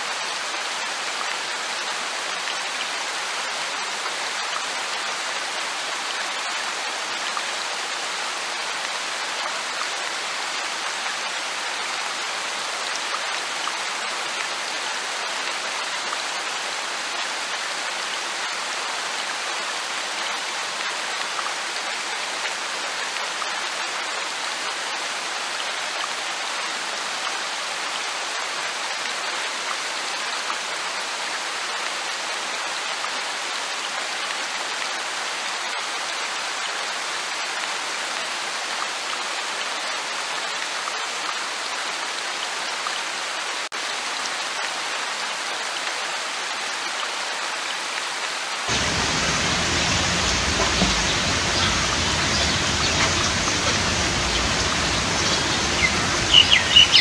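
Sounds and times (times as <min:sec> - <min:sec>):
light rain hissing: 0:48.7 - 0:57.0
raindrop ticks: 0:48.7 - 0:57.0.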